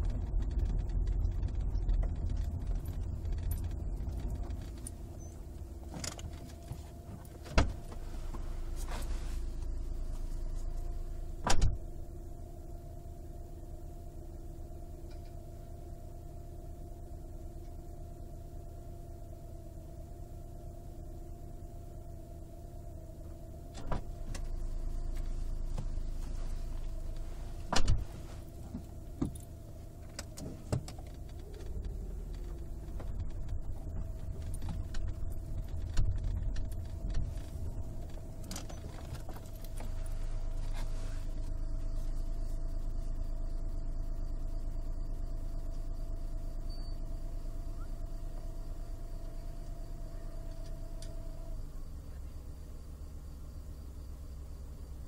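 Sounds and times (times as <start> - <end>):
car engine running: 0.0 - 55.0
sharp clicks and knocks: 28.6 - 40.0.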